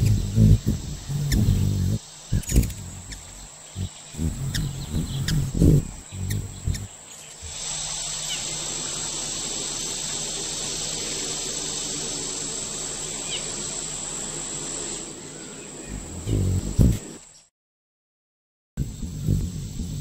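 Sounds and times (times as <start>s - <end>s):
loud low sounds: 0.0s - 7.7s
high-pitched insect buzzing: 0.0s - 17.2s, 18.8s - 20.0s.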